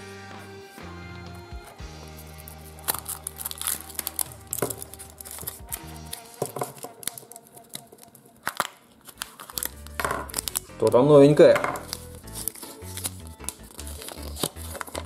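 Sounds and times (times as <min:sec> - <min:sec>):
foil wrapper crinkling: 0:02.0 - 0:15.0
plastic capsule handled: 0:02.4 - 0:15.0
chocolate shell breaking: 0:02.8 - 0:10.7, 0:11.4 - 0:15.0.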